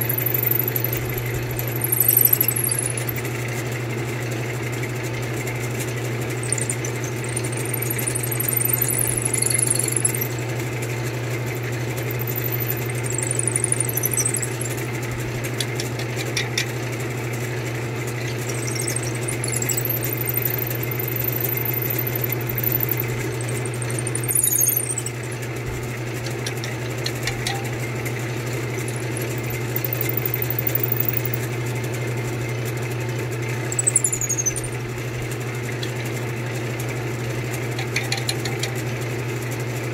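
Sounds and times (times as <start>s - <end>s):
drill bit squealing in wood: 0.0s - 3.2s, 6.4s - 10.4s, 12.1s - 14.8s, 18.2s - 25.2s, 28.9s - 31.4s, 33.7s - 34.8s.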